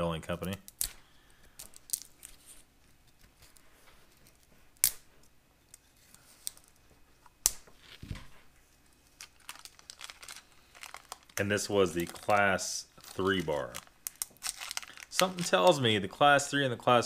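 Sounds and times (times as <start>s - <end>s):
sharp clicks of packets: 9.2s - 15.8s.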